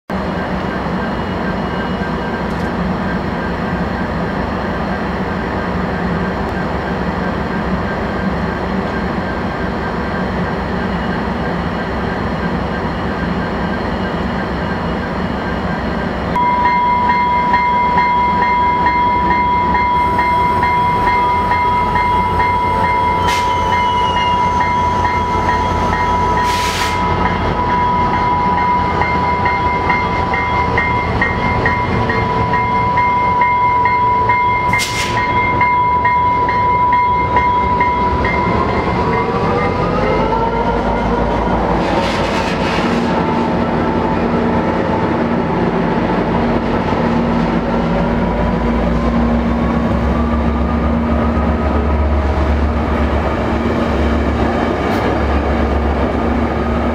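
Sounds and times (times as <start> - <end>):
steady high tone: 16.3 - 41.7.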